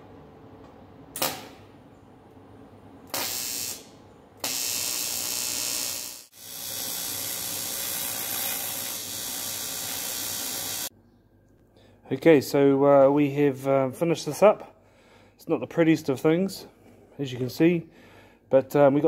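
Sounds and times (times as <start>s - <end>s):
welding arc hissing: 3.1s - 10.9s.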